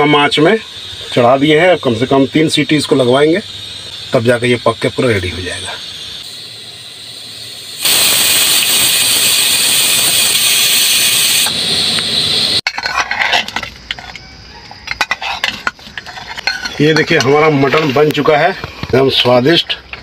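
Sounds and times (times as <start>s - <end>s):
pressure cooker whistling: 0.0s - 12.6s
metal ladle scraping in pot: 12.7s - 18.0s.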